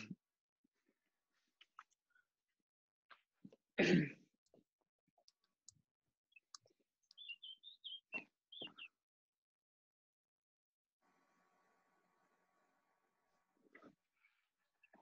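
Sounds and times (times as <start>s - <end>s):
small bird chirping: 5.3s - 9.0s.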